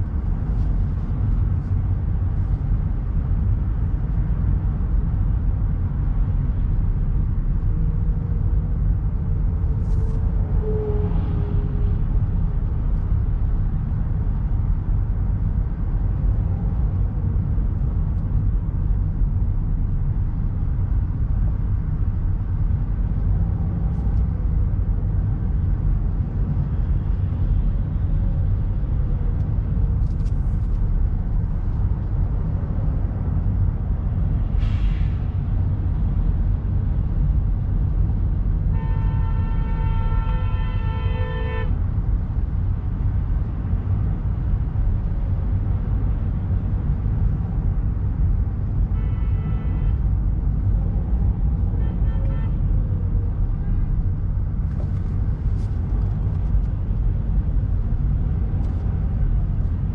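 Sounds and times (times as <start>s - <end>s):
car cabin road rumble: 0.0s - 59.9s.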